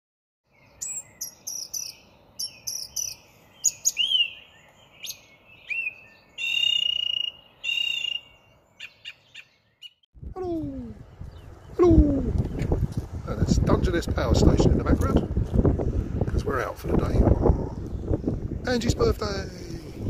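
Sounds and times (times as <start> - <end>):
bird chirping and whistling: 0.7 - 10.0.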